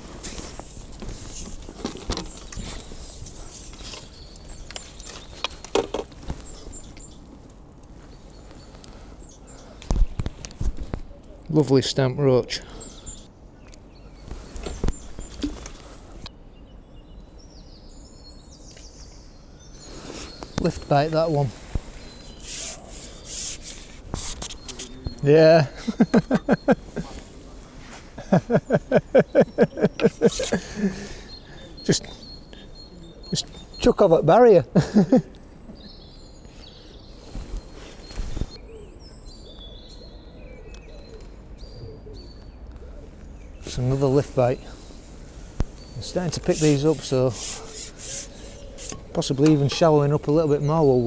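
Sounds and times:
faint high bird chirps: 12.6 - 45.0.

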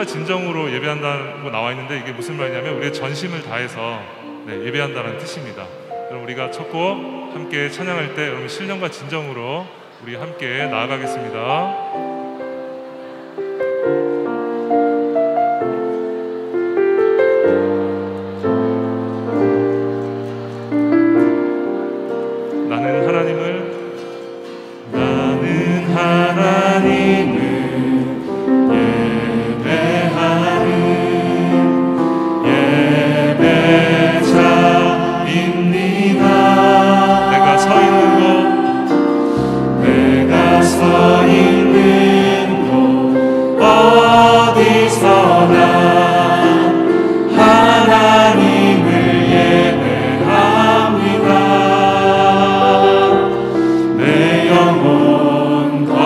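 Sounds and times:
choir singing: 0.0 - 56.0
praise band playing: 0.0 - 56.0.

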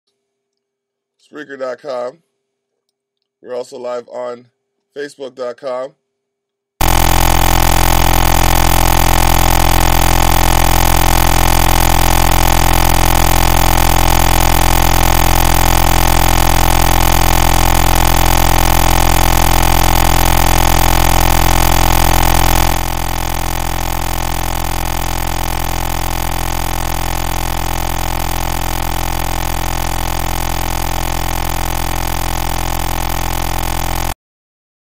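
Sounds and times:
drone of held tones: 6.8 - 34.2.

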